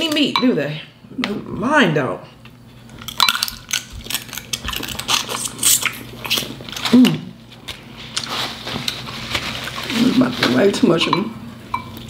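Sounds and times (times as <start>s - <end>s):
sucking and chewing: 2.8s - 7.2s
crab shells cracking: 2.9s - 7.0s.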